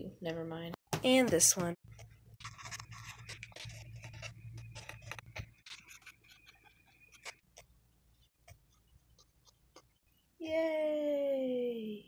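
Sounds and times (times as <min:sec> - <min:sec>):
pen scratching: 0:01.9 - 0:10.0.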